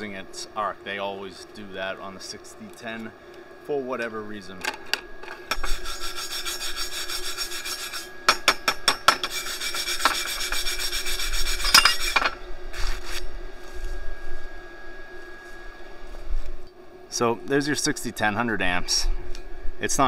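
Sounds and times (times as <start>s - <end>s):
wire brush scrubbing steel: 5.5s - 13.3s.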